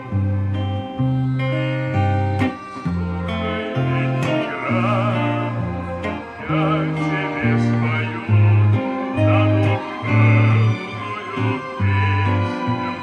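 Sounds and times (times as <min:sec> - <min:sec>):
electric guitar strumming chords: 0:00.0 - 0:13.0
sustained bass notes: 0:00.0 - 0:13.0
wavering melody line: 0:00.0 - 0:13.0.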